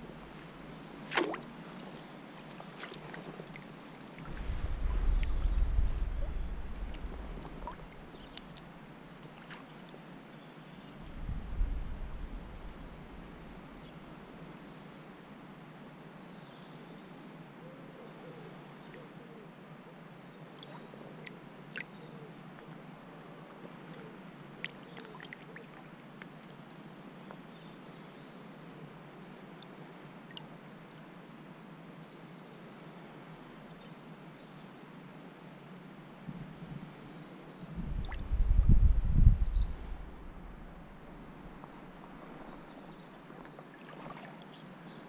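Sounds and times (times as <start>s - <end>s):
soft water movement: 0.0s - 10.2s, 10.9s - 14.4s, 23.5s - 26.8s, 37.7s - 45.0s
low rumble: 4.3s - 8.2s, 11.0s - 13.7s, 37.8s - 42.9s.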